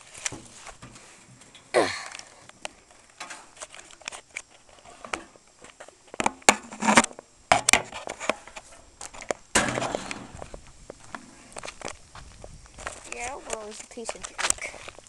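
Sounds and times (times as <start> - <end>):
footsteps crunching on loose ground: 0.0 - 1.5, 7.9 - 15.0
clicks and rustles: 0.0 - 15.0.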